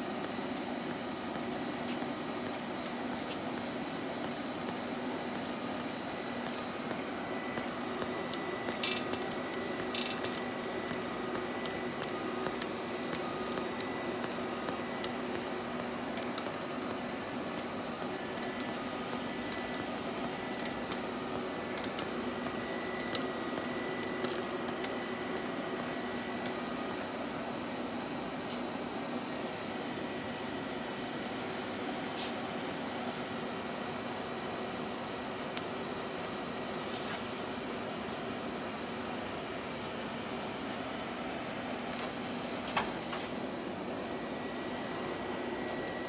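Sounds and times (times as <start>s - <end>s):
welding machine hiss and hum: 0.0s - 46.0s.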